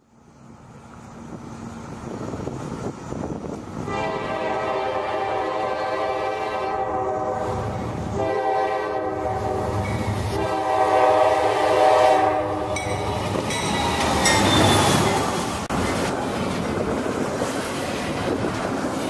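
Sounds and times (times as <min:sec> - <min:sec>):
diesel locomotive engine: 0:00.0 - 0:19.0
train wheels on rails: 0:00.0 - 0:19.0
locomotive air horn blasts: 0:03.8 - 0:13.0.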